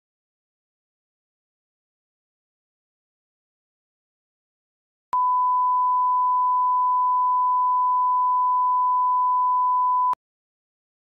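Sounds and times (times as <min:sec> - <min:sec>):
pure test tone beep: 0:05.2 - 0:10.2.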